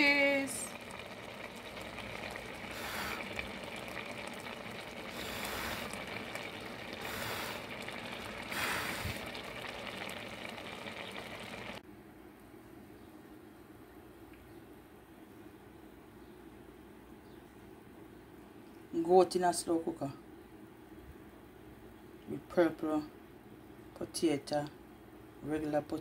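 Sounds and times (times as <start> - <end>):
pot boiling hard: 0.0 - 11.8
faint room hiss: 0.0 - 26.0.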